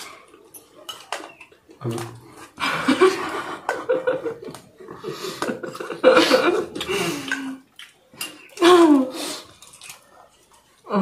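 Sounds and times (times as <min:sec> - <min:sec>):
people laughing: 0:02.6 - 0:07.1.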